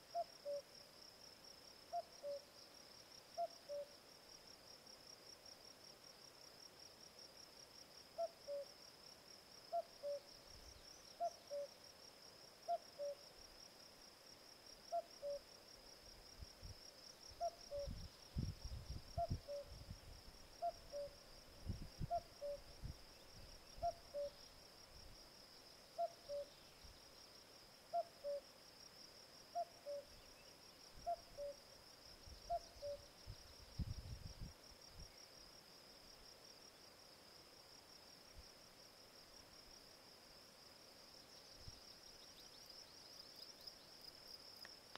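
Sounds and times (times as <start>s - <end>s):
cuckoo calling: 3.4s - 3.9s, 8.2s - 8.6s, 9.7s - 10.2s, 12.7s - 13.2s, 20.6s - 21.2s, 22.1s - 22.6s, 23.8s - 24.4s, 26.0s - 26.5s, 27.9s - 28.4s, 29.6s - 30.1s, 32.5s - 33.0s.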